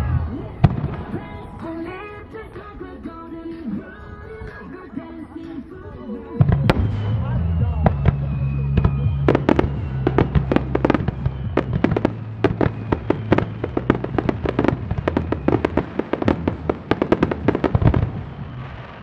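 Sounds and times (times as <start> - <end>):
music: 0.0 - 19.0
fireworks bursting: 0.4 - 4.7, 6.2 - 19.0.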